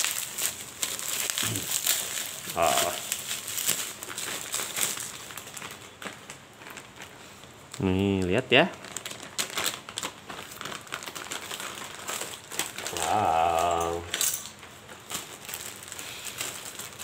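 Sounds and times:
plastic bags crinkling: 0:00.0 - 0:17.0
man humming: 0:01.4 - 0:01.7, 0:02.5 - 0:03.1, 0:12.9 - 0:14.1.

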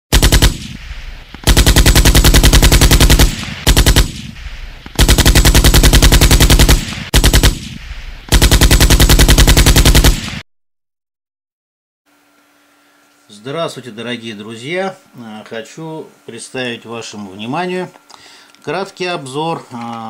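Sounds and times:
automatic machine-gun fire: 0:00.1 - 0:10.4.

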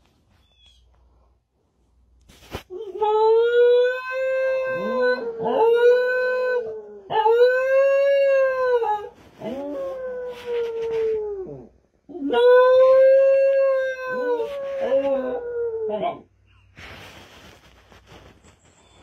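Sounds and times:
small dog howling: 0:02.8 - 0:16.2
husky howling: 0:02.9 - 0:16.2.

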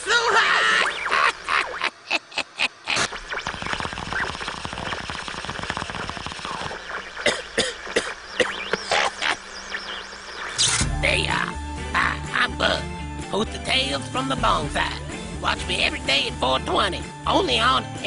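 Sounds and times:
rapid crackling clicks: 0:02.9 - 0:10.8.

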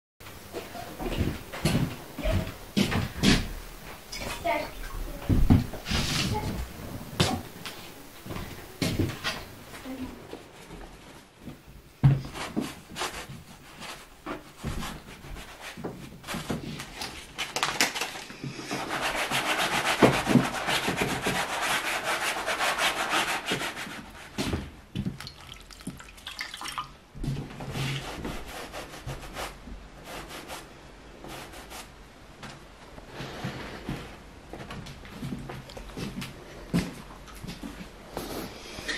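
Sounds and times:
brush scrubbing paint on canvas: 0:03.3 - 0:09.1, 0:12.2 - 0:17.4, 0:18.4 - 0:24.6, 0:27.6 - 0:32.0.

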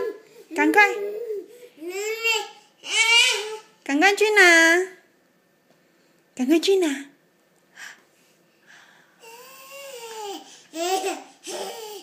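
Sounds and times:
baby vocalizing: 0:09.2 - 0:12.0.

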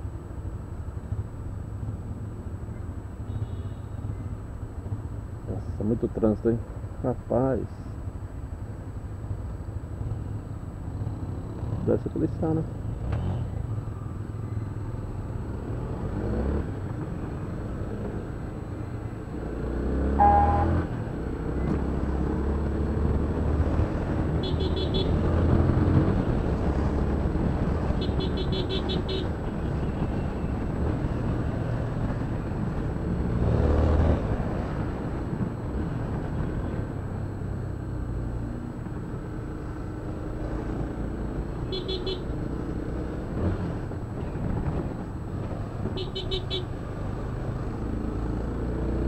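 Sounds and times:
car traffic: 0:00.0 - 0:49.0
short high beeps: 0:20.2 - 0:20.8.

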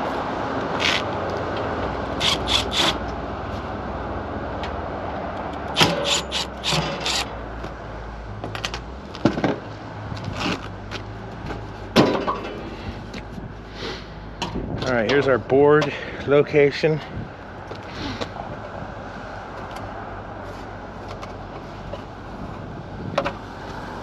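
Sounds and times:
cordless impact driver: 0:02.2 - 0:03.0, 0:05.7 - 0:07.3.

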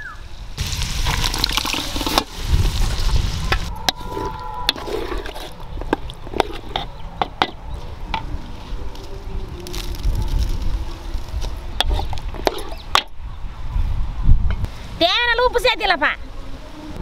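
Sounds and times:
frying hiss: 0:00.6 - 0:03.8
ladle stirring thick curry: 0:03.9 - 0:07.6.

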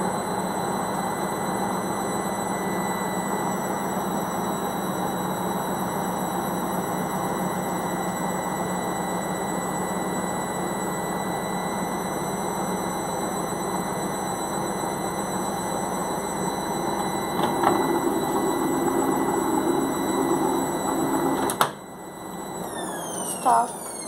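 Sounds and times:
washing machine motor hum: 0:00.0 - 0:24.0
washing machine drum tumbling: 0:17.2 - 0:21.8.

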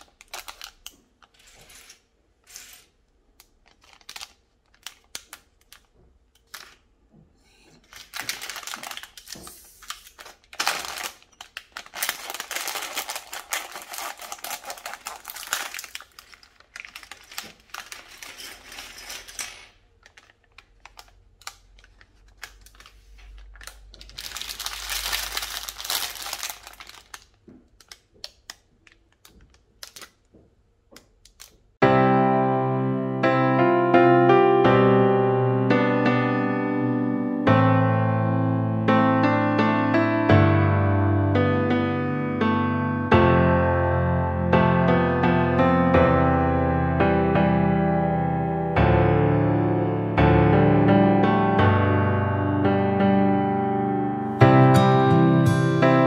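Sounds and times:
plastic bag crinkling: 0:00.0 - 0:06.9, 0:07.6 - 0:30.3.

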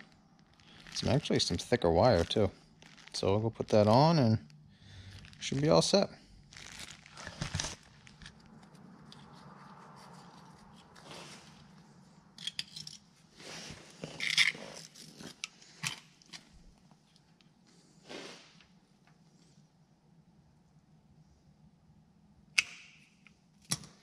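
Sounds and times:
wire scraping and rustling: 0:00.0 - 0:16.6.

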